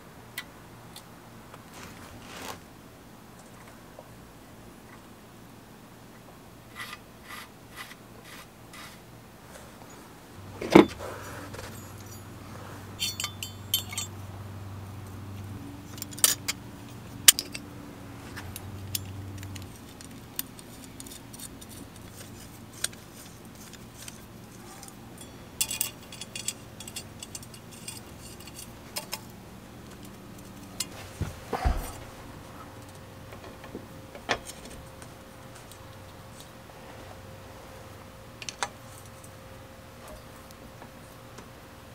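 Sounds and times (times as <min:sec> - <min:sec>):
small metal bolts clinking: 0:10.6 - 0:14.2, 0:15.8 - 0:17.7, 0:18.4 - 0:31.0.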